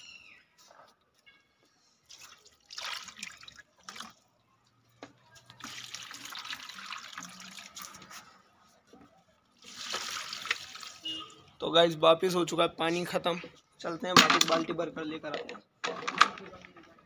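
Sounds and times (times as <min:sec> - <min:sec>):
water pouring into plant pots: 0:02.0 - 0:04.8, 0:05.4 - 0:08.4, 0:09.6 - 0:11.6.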